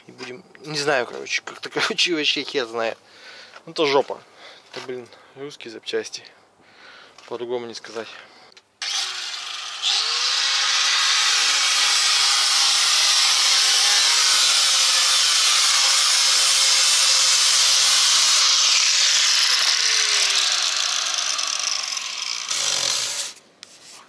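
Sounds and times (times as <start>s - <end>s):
angle grinder grinding metal: 8.8s - 23.4s.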